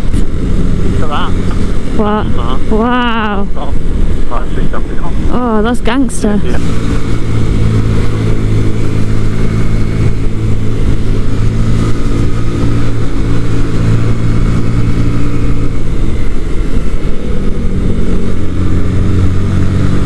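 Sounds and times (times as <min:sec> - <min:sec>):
motorcycle engine running: 0:00.0 - 0:20.0
wind rushing: 0:00.0 - 0:20.0.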